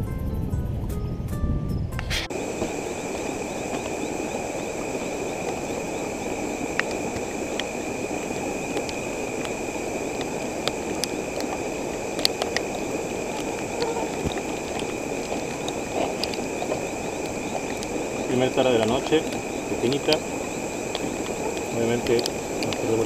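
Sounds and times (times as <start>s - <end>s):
low rushing noise: 2.0s - 23.0s
night insects chirring: 2.2s - 23.0s
sharp clicks: 2.6s - 23.0s.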